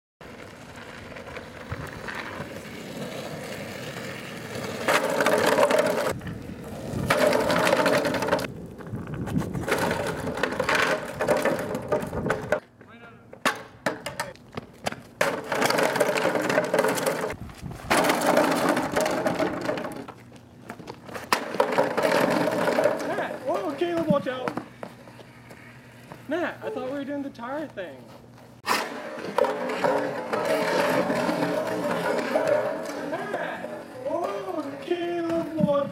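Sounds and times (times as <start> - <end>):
skateboard wheels rolling on asphalt: 0.2 - 12.6, 14.1 - 26.4, 28.6 - 35.9
plastic crates clattering: 15.2 - 20.1.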